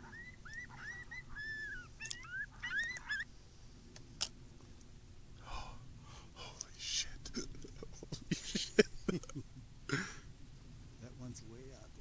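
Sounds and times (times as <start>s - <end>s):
coyote yipping: 0.0s - 3.4s
faint clicks: 2.0s - 2.3s.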